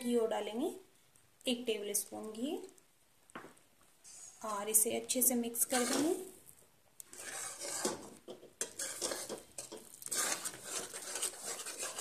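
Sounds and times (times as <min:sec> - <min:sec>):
metal spatula scraping a pan: 0:04.0 - 0:04.6, 0:05.6 - 0:06.3, 0:07.1 - 0:12.0.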